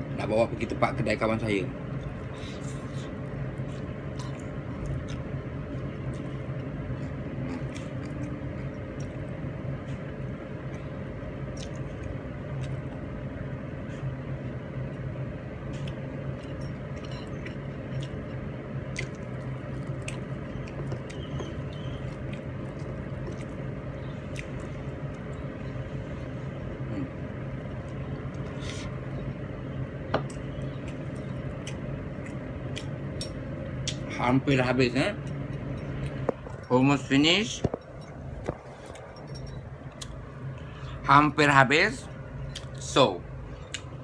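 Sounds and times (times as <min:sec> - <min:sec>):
low steady hum: 0:00.0 - 0:44.0
chewing with lip smacks: 0:01.9 - 0:13.1, 0:15.7 - 0:25.8, 0:30.3 - 0:34.2, 0:35.2 - 0:36.7, 0:37.7 - 0:40.7, 0:42.4 - 0:42.8.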